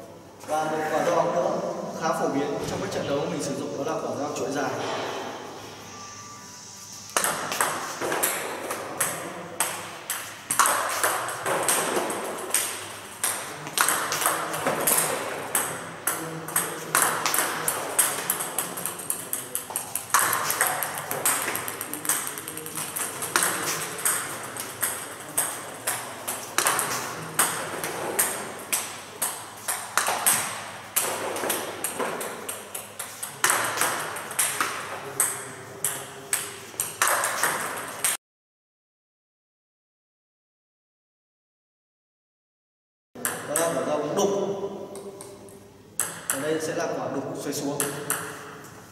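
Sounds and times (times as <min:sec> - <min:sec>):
ping pong ball bouncing on table: 0:07.2 - 0:38.2, 0:43.2 - 0:44.0, 0:44.9 - 0:46.7, 0:47.8 - 0:48.6
ball clicking off paddle: 0:09.0 - 0:38.2.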